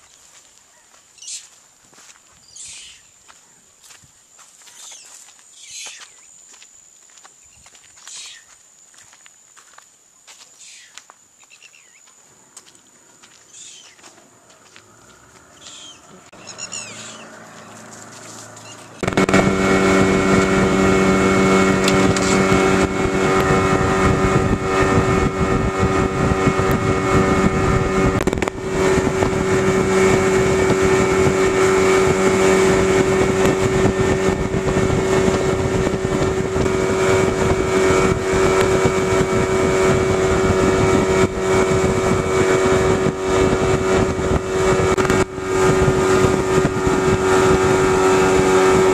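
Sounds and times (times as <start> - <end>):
high chirps: 1.1 - 1.5, 2.4 - 3.2, 13.4 - 14.0, 15.5 - 17.9
small boat motor running: 14.8 - 48.9.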